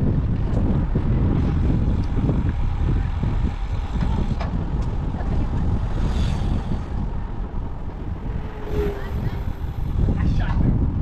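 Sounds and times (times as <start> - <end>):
wind rumbling on microphone: 0.0 - 11.0.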